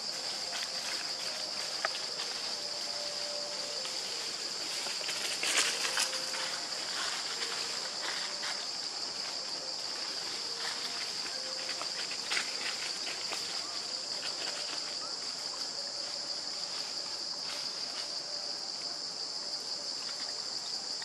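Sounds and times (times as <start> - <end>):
leaf litter crackles: 0.0 - 15.1
high-pitched insect drone: 0.0 - 21.0.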